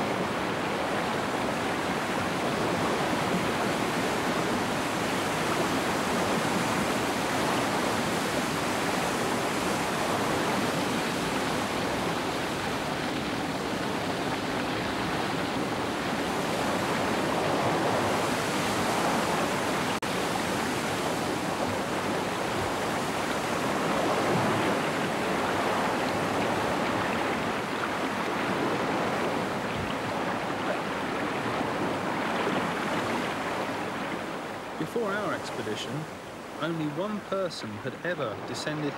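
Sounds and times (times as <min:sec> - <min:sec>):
river rapids rushing: 0:00.0 - 0:38.9.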